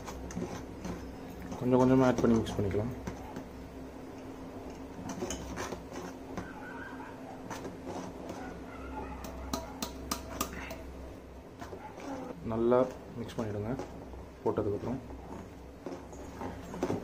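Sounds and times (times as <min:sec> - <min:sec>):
spoon scraping metal bowl: 0:00.0 - 0:03.4, 0:04.6 - 0:10.9, 0:11.6 - 0:14.0.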